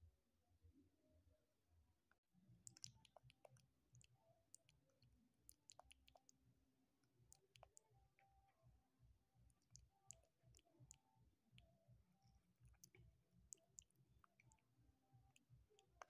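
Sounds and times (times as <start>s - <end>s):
faint scattered clicks: 2.6s - 6.4s, 7.0s - 8.6s, 9.5s - 16.0s.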